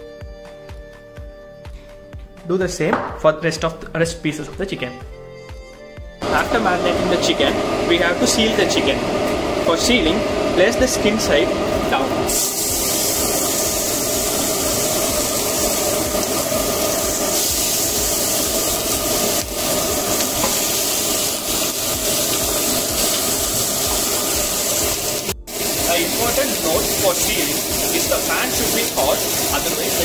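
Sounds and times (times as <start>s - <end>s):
chicken sizzling in hot oil: 6.3s - 30.0s.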